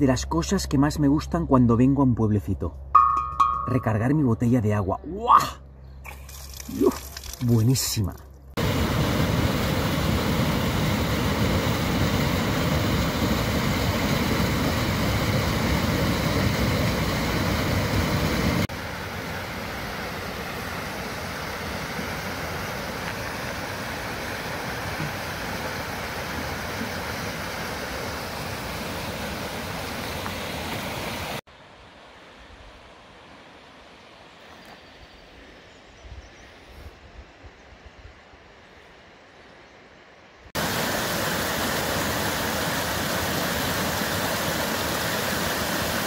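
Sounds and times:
stream rushing over rocks: 8.6 - 31.4, 40.6 - 46.0
waterfall pouring into a pool: 40.6 - 46.0.

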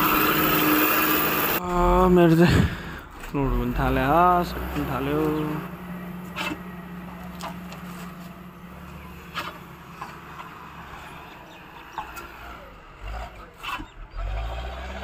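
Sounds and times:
engine idling hum: 0.0 - 15.0.

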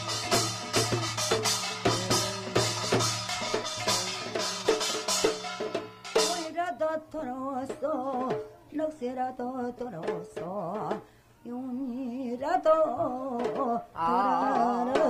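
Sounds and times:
gongs and cymbals crashing: 0.0 - 6.5
hourglass drum strokes: 0.0 - 6.5
person singing with vibrato: 1.5 - 5.3, 6.2 - 15.0.

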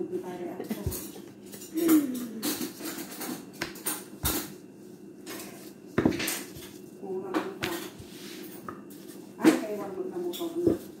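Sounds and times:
rolling pin rolling dough: 5.2 - 11.0.

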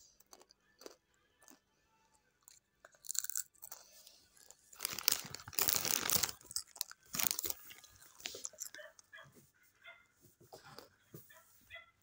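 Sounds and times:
tortilla chips crunched and chewed: 0.0 - 1.7, 2.4 - 9.0.

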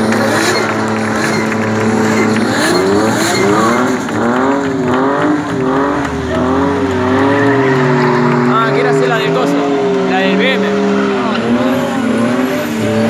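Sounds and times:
car engine revving high: 0.0 - 13.0
tyres squealing: 6.9 - 9.0.

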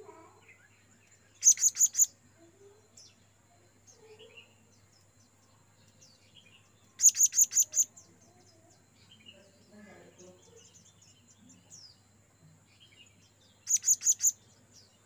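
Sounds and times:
faint bird chirps: 0.0 - 15.0
parrot shrill calls: 1.4 - 2.1, 7.0 - 7.9.

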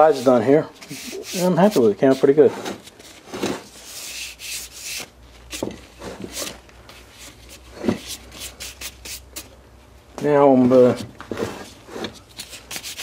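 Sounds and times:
handling rubs: 0.3 - 9.5
sandpaper scraping metal: 0.8 - 2.6, 3.7 - 5.1, 8.0 - 9.5, 11.4 - 13.0.

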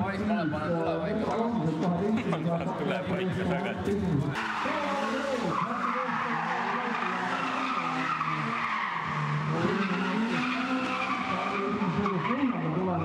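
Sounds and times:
race car engine revving: 1.8 - 13.0
tyres squealing on tarmac: 4.3 - 13.0.

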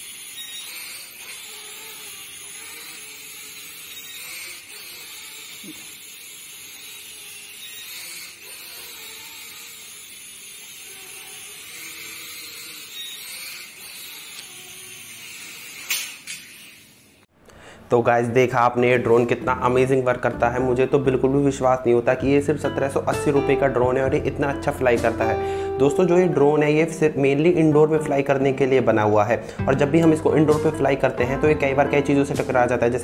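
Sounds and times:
toy drone buzzing: 0.0 - 17.3.

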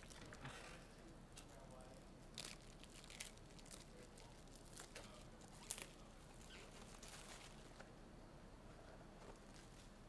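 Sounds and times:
plastic packaging rustling: 2.4 - 7.8.

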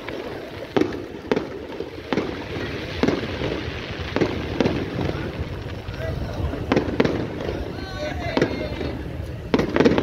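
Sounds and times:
crackling rumble of fireworks: 0.0 - 10.0
firework bangs: 0.0 - 10.0.

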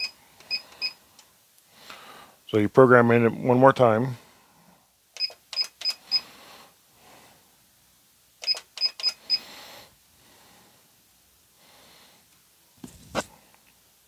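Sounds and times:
quick electronic beeps: 8.4 - 9.4.

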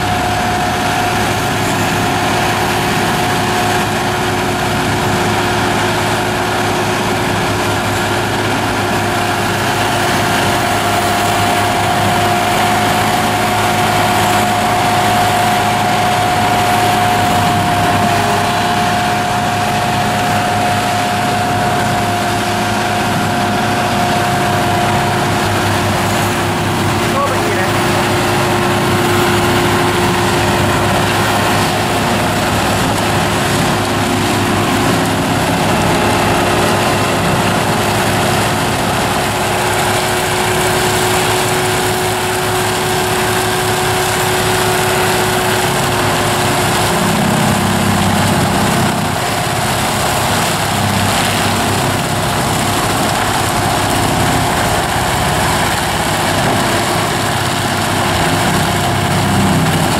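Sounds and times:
mulcher rotor grinding wood: 0.0 - 59.9
steady whine: 0.0 - 59.9
tractor engine under load: 0.0 - 59.9.

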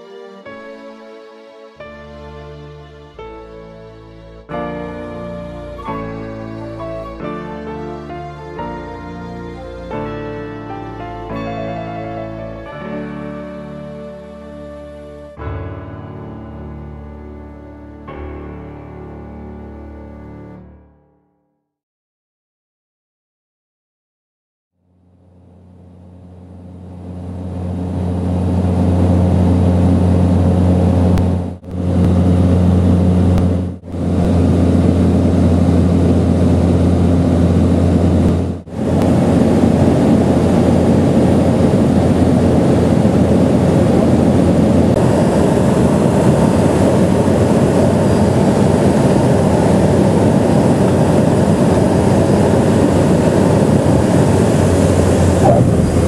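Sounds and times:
light aircraft engine droning: 1.8 - 15.3, 25.2 - 56.0.

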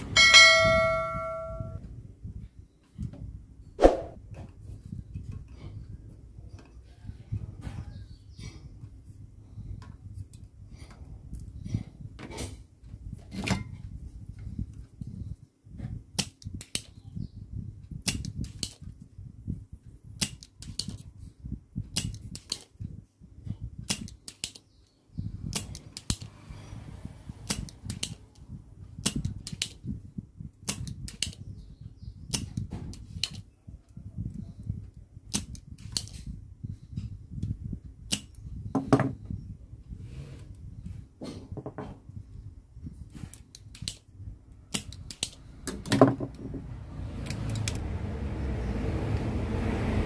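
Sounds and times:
low steady rumble: 0.0 - 7.7, 44.1 - 50.0.

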